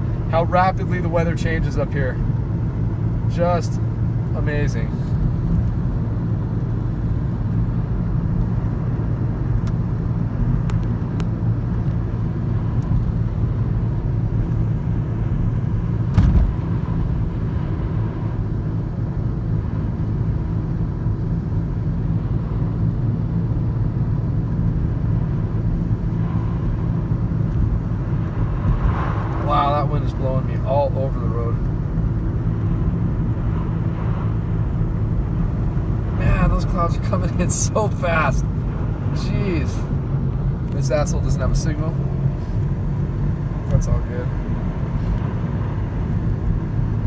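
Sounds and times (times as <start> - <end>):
car road and engine noise: 0.0 - 47.0
short thump: 16.1 - 16.7.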